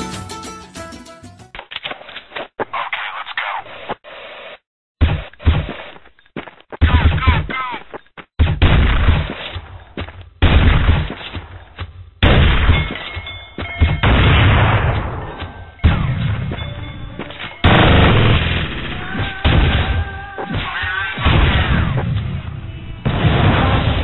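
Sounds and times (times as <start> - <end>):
loud bangs: 12.2 - 22.4.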